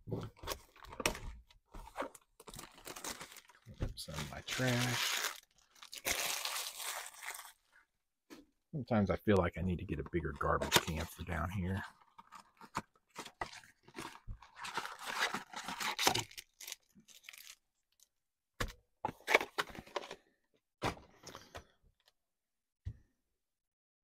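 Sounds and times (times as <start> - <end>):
cardboard crinkling and rustling: 0.2 - 7.6, 10.4 - 17.6.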